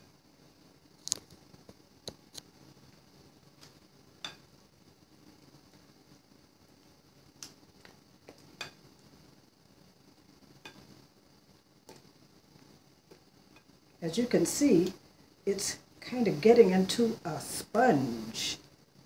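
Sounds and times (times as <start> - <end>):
spoon stirring dough in bowl: 1.0 - 4.6, 5.4 - 9.3, 10.0 - 14.0.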